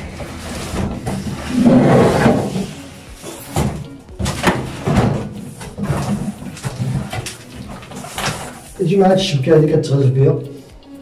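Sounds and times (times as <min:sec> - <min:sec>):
cardboard box scraping and rustling: 0:00.0 - 0:03.4.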